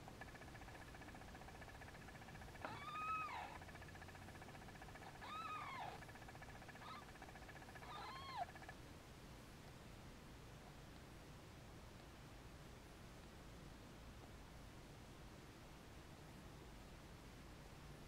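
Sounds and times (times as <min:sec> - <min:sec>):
faint squeak: 0:00.2 - 0:08.8
kitten mewing: 0:02.5 - 0:03.7, 0:04.6 - 0:08.7.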